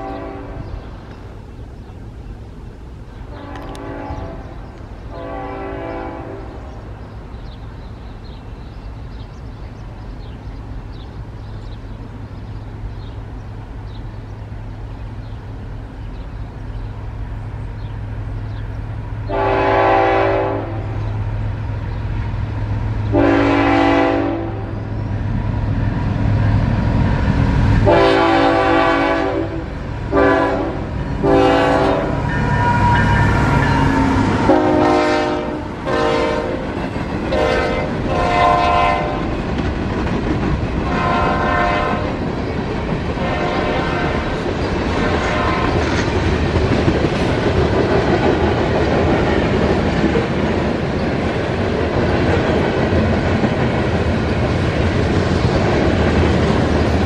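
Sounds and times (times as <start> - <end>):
locomotive air horn blasts: 0.0 - 0.6, 3.3 - 6.6, 19.3 - 21.0, 23.1 - 24.8, 27.8 - 36.7, 37.3 - 39.3, 40.8 - 42.2, 43.2 - 44.4, 45.0 - 45.8
diesel locomotive rumble: 0.0 - 57.0
crossing bell ticking: 32.2 - 34.2.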